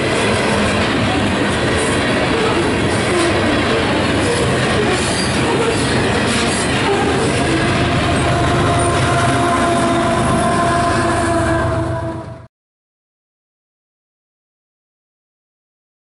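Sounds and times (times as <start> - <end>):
diesel locomotive passing: 0.0 - 12.5
train wheels rumbling on rail: 0.0 - 12.5
steady squealing tone: 2.3 - 12.4.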